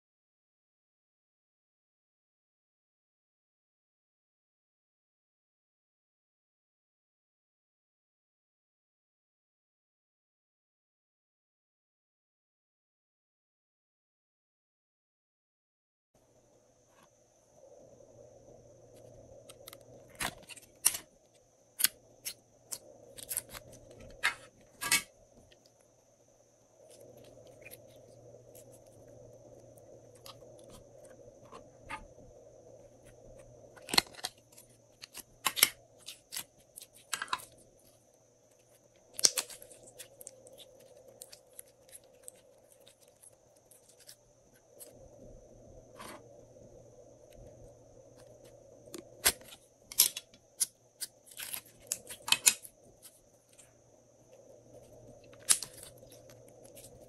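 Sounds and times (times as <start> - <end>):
faint background hum: 16.2 - 57.0.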